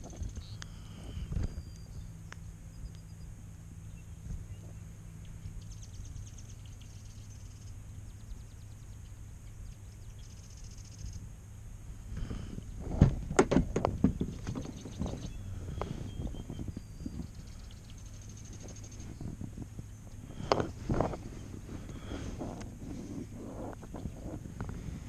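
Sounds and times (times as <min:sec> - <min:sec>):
sharp knocks and clatter: 0:12.9 - 0:15.3.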